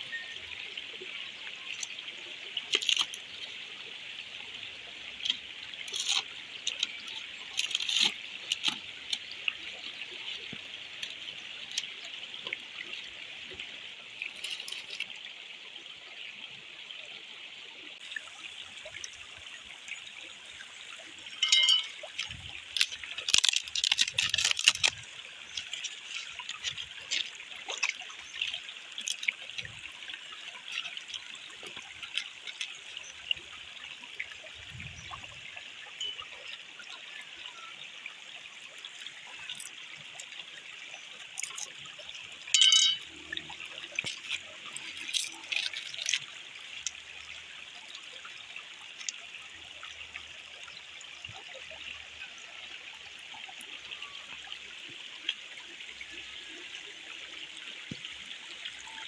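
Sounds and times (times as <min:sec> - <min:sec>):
stream trickling over rock: 0:00.0 - 0:59.0
stones set down on rock: 0:42.6 - 0:43.0.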